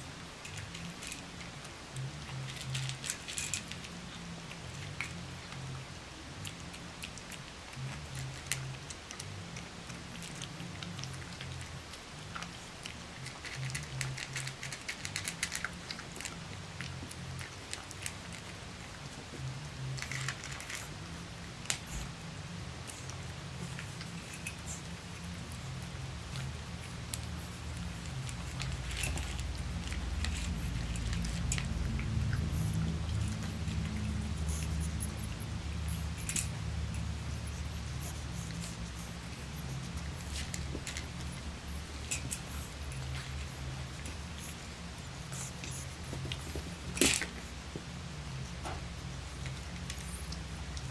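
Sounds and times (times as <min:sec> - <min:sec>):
low steady hum: 0:00.0 - 0:50.9
puppies crunching kibble: 0:00.0 - 0:50.9.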